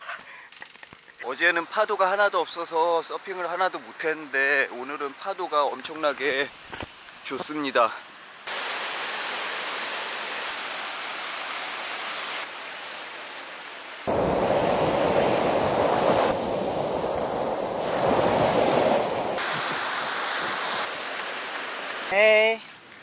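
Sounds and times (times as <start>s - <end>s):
waves breaking on shore: 8.5s - 22.4s.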